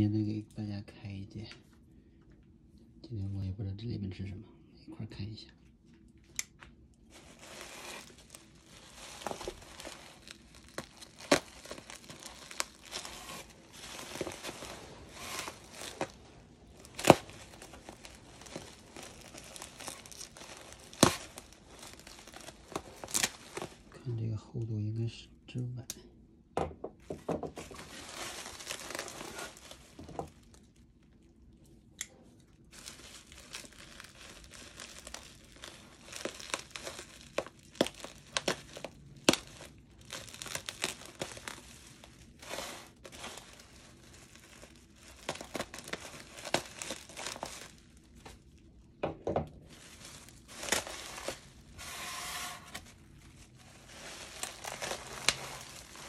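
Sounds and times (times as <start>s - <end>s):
bubble wrap crinkling and crackling: 5.7s - 24.7s, 27.0s - 56.0s
knife cutting bubble wrap: 7.1s - 23.8s, 27.6s - 30.4s, 32.8s - 48.4s, 49.8s - 56.0s.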